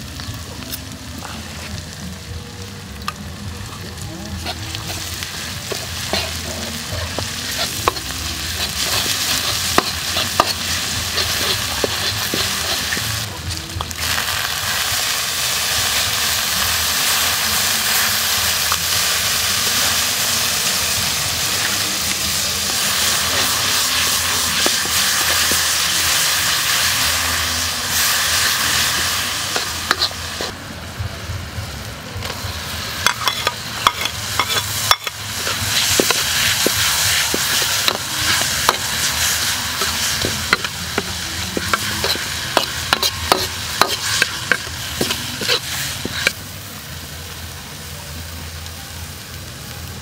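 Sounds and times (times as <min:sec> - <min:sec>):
food sizzling in a wok: 0:00.0 - 0:50.0
metal ladle scraping a wok: 0:04.4 - 0:13.2, 0:22.3 - 0:30.5, 0:33.0 - 0:46.4.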